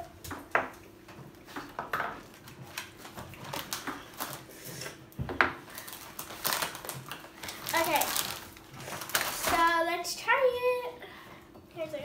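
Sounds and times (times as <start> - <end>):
plastic wrapper crinkling: 2.2 - 4.8, 5.6 - 9.9.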